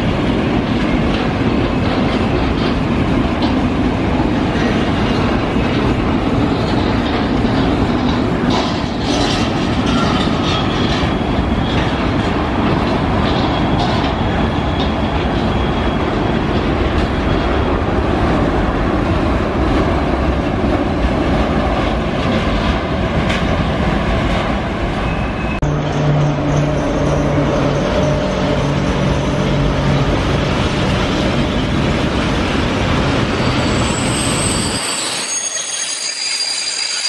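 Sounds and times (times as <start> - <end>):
rail joints clicking: 0.0 - 25.1
wheels rumbling on rails: 0.0 - 36.6
electric locomotive humming: 0.0 - 37.0
high wheel squeals: 33.2 - 37.0.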